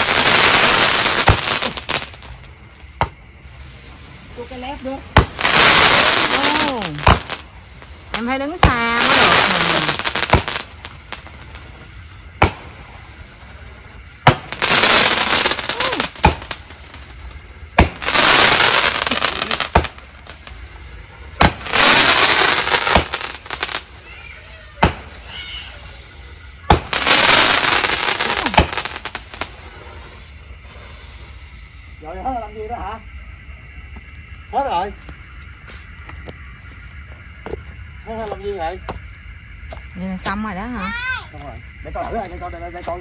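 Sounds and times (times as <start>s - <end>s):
firework launch pops: 0.0s - 3.8s, 5.1s - 13.5s, 14.2s - 20.6s, 21.3s - 25.6s, 26.6s - 31.4s
crackling firework bursts: 0.0s - 33.0s.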